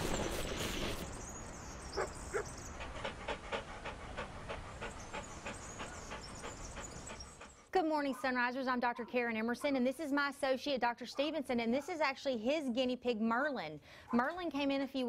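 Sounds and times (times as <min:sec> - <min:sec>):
dog panting: 0:02.0 - 0:08.3.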